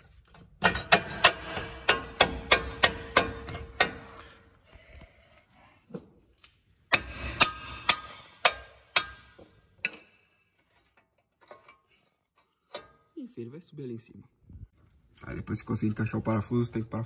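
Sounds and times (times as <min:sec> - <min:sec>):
hammer striking steel bolt: 0:00.6 - 0:04.2, 0:06.9 - 0:10.4.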